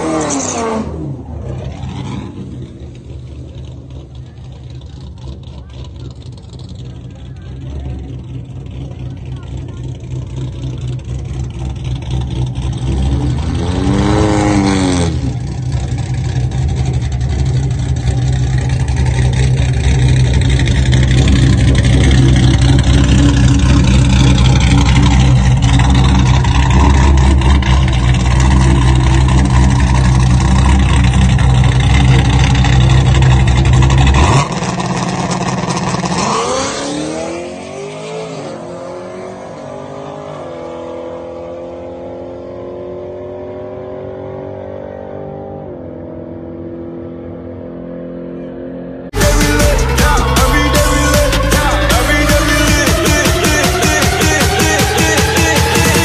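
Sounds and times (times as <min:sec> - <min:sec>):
quieter engine with gliding pitch: 0:00.0 - 0:43.7
car engine revving and running: 0:00.0 - 0:56.0.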